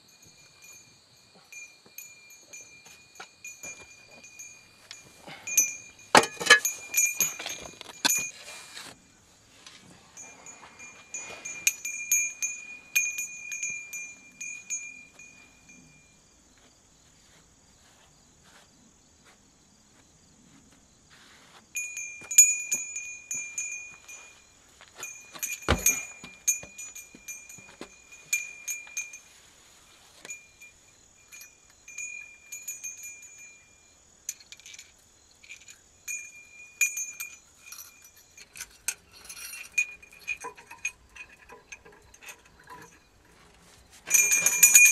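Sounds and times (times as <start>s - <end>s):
high chime-like ringing tone: 0.0s - 8.6s, 10.2s - 16.3s, 21.8s - 29.4s, 44.1s - 44.9s
light metallic clinks: 0.0s - 16.8s, 21.7s - 29.5s, 30.1s - 44.9s.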